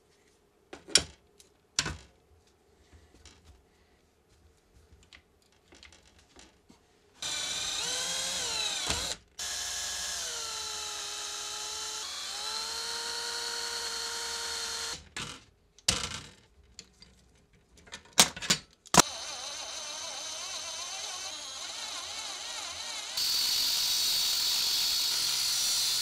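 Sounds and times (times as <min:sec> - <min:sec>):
cordless drill boring through steel: 0:07.2 - 0:15.0, 0:19.0 - 0:26.0.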